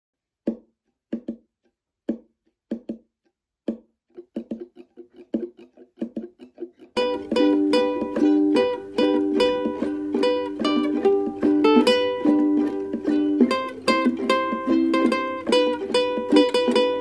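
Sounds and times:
muted ukulele knocks: 0.5s - 1.4s, 2.1s - 3.0s, 7.0s - 17.0s
strummed ukulele chords: 3.7s - 17.0s.

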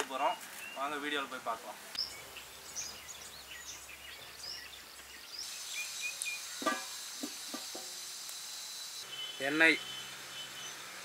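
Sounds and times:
small birds chirping: 0.0s - 10.9s
steady high hiss: 0.0s - 11.0s.

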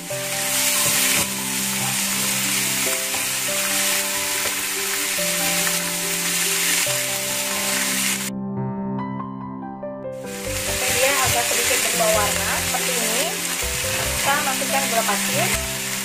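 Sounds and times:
beef sizzling in frying pan: 0.0s - 8.3s, 10.2s - 16.0s
wooden spatula stirring: 10.4s - 13.2s.

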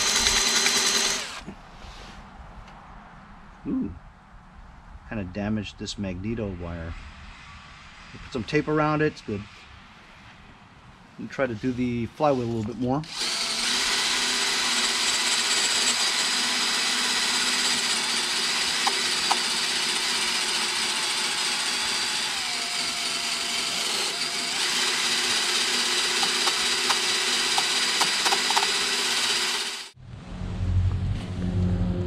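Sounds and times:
tool ticking against metal: 0.0s - 1.2s, 14.2s - 19.7s, 24.7s - 29.6s
cordless drill running: 0.0s - 1.5s, 12.3s - 30.0s.

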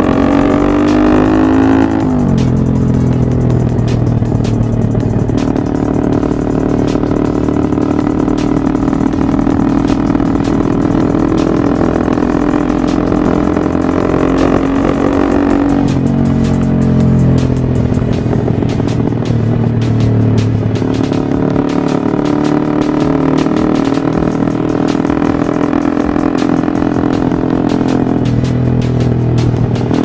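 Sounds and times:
motorbike engine running: 0.0s - 30.0s
music with steady beat: 0.0s - 30.0s.

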